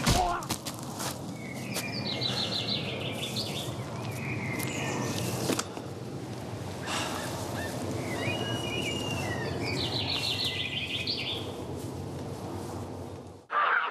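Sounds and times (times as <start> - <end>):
small birds chirping: 1.2 - 11.8.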